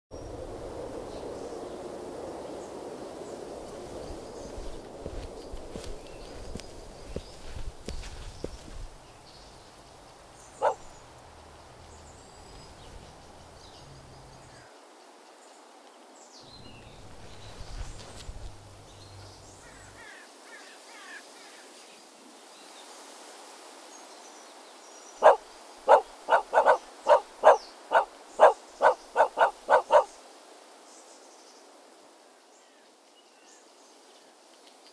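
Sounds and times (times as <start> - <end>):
faint outdoor hiss: 0.1 - 34.9
small dog barking: 10.6 - 11.0, 25.2 - 30.1.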